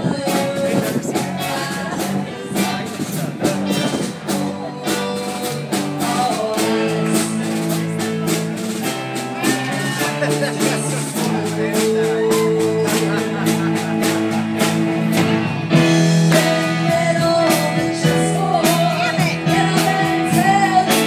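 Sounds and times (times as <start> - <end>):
held keyboard chords: 0.0 - 21.0
drum beat: 0.4 - 21.0.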